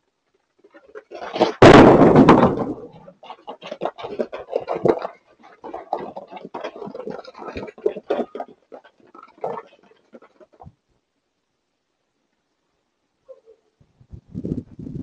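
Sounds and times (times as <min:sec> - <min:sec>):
hooves clattering on concrete: 0:00.1 - 0:10.8
deer crashing into garage door: 0:01.1 - 0:05.0.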